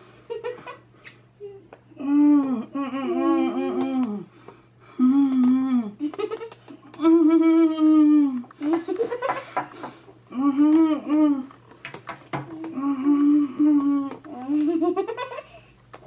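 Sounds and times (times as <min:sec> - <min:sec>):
person humming and moaning: 0:01.4 - 0:06.2, 0:06.8 - 0:08.6, 0:10.3 - 0:11.6, 0:12.4 - 0:14.8.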